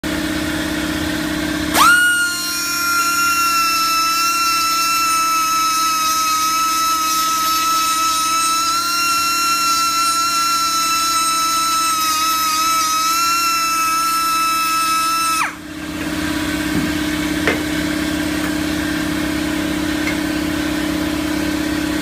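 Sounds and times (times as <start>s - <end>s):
rotary grinder grinding steel: 1.8s - 15.6s.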